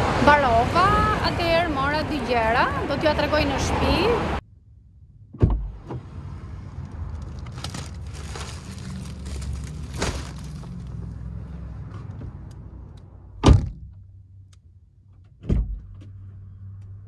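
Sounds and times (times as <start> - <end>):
low steady rumble: 0.0 - 17.0
car door opening thump: 5.4 - 6.1, 13.4 - 13.9, 15.4 - 15.9
plastic bag rustling: 7.0 - 11.2.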